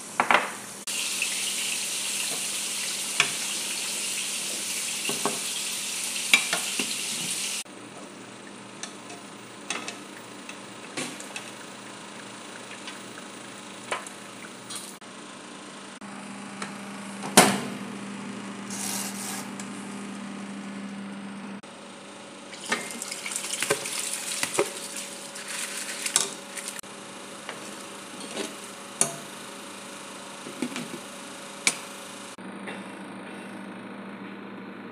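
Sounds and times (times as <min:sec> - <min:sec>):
rice scraping into a pot: 0:18.7 - 0:19.5.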